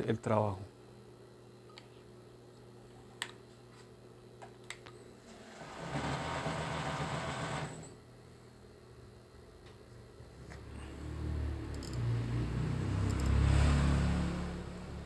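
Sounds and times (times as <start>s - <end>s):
sewing machine running: 5.3s - 8.0s
sharp clicks: 11.7s - 12.0s, 13.1s - 13.4s.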